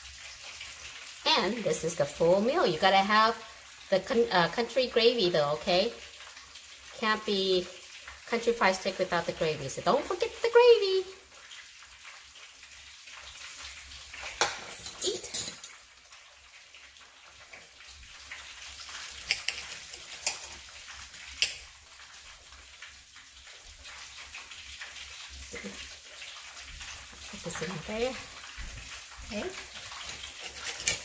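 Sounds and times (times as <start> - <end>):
knife and fork clinking on plate: 14.4 - 15.8.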